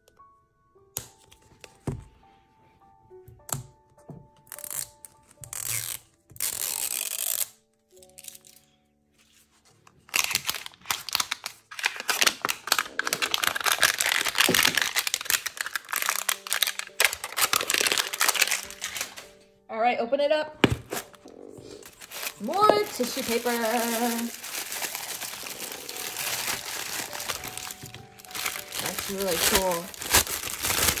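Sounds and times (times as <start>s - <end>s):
soft background music: 0.0s - 31.0s
packaging ripping: 4.4s - 8.7s, 9.9s - 19.4s, 20.6s - 31.0s
packaging crackling and rustling: 9.7s - 19.4s, 20.6s - 31.0s.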